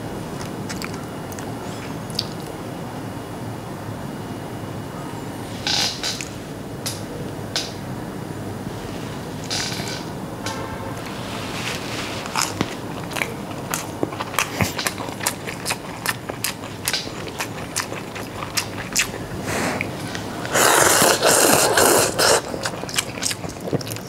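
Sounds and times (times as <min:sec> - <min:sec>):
wet chewing: 0:00.3 - 0:02.5, 0:11.7 - 0:24.0
loud noodle slurp: 0:14.2 - 0:24.0.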